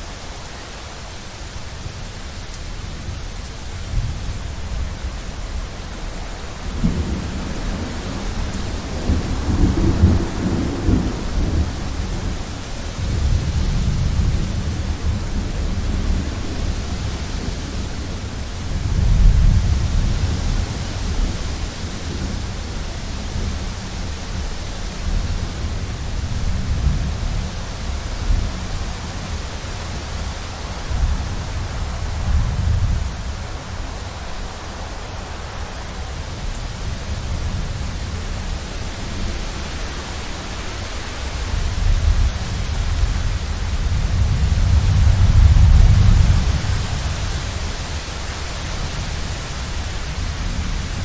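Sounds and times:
rain hissing: 0.0s - 51.0s
thunder rumbling: 6.5s - 33.8s, 41.4s - 48.1s.

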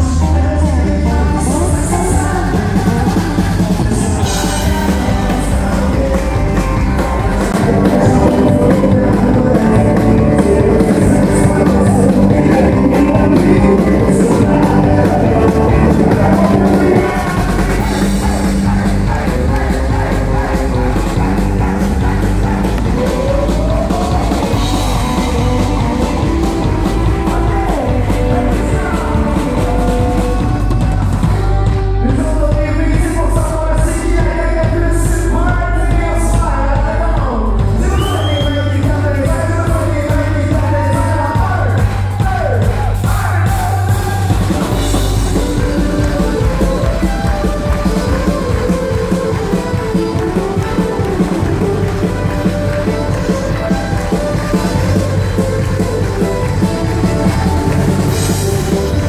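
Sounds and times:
country-rock band playing: 0.0s - 59.0s
fiddle and mandolin fast notes: 44.5s - 59.0s.

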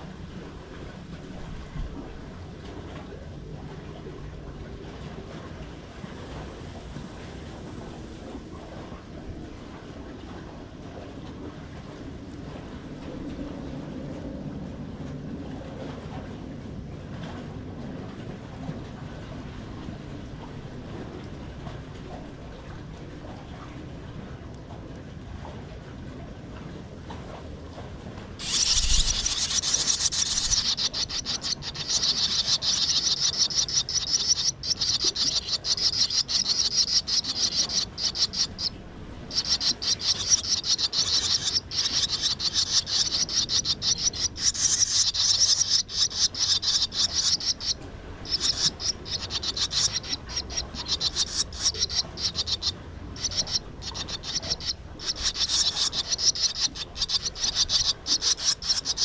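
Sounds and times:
swallows chirping: 28.4s - 59.0s.

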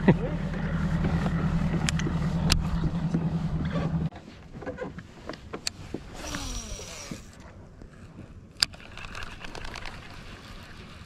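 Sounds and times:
boat motor humming: 0.0s - 4.8s, 5.9s - 8.4s
fishing reel spool whirring: 6.1s - 7.5s.

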